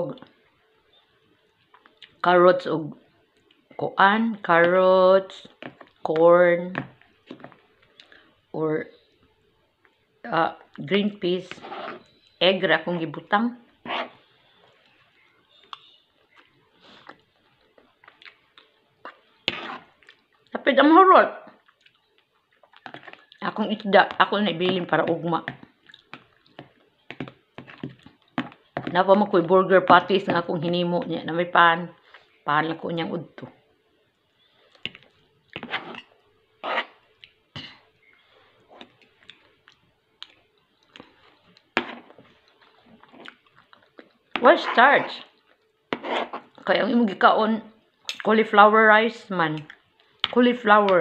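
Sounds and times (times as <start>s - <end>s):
chewing: 15.6s - 20.5s, 21.6s - 23.4s, 25.5s - 28.6s, 38.8s - 44.2s
cutlery scraping on plate: 19.5s - 19.9s, 35.6s - 37.0s, 46.0s - 46.5s.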